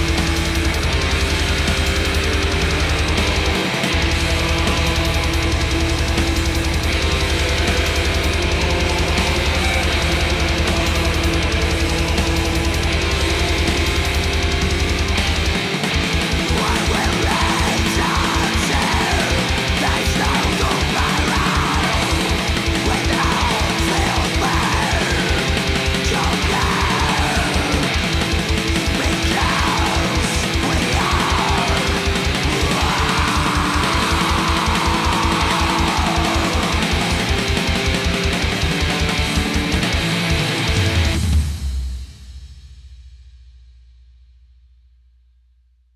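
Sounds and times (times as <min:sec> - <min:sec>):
heavy metal music: 0:00.0 - 0:42.3
fast kick drum: 0:08.3 - 0:40.0.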